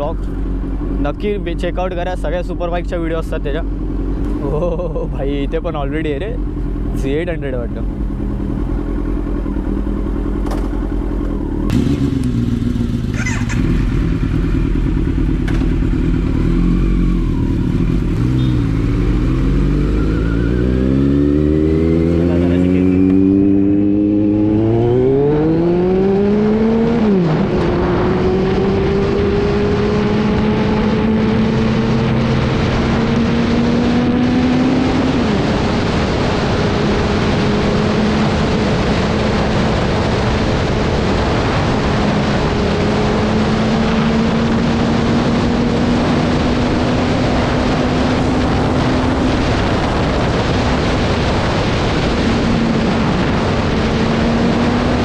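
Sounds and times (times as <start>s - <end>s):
motorcycle engine revving: 0.0s - 55.0s
constant rushing noise: 26.9s - 55.0s.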